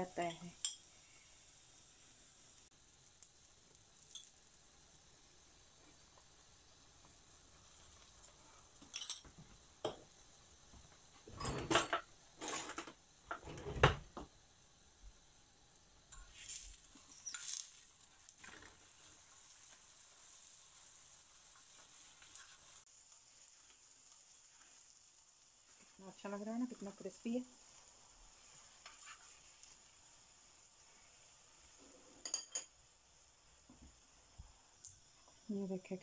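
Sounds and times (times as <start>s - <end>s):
oil sizzling in a pan: 0.0s - 36.0s
metal utensils scraping a pan: 11.3s - 13.8s, 16.1s - 17.8s, 28.8s - 29.5s.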